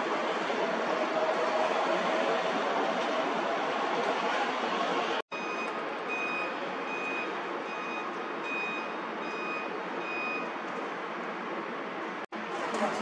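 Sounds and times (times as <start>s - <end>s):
reversing alarm beeping: 5.3s - 10.5s.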